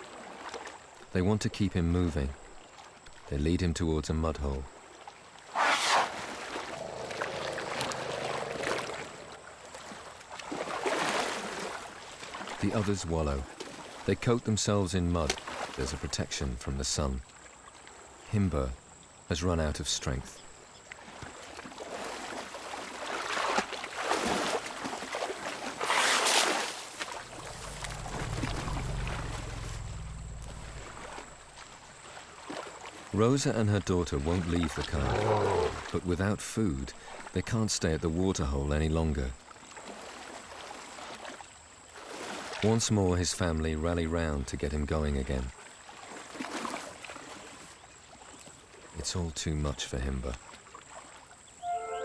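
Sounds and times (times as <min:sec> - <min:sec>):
elephants splashing through water: 0:05.4 - 0:14.2, 0:21.0 - 0:33.5, 0:34.2 - 0:36.0, 0:39.5 - 0:42.8, 0:45.7 - 0:48.8
low steady hum: 0:27.0 - 0:32.2.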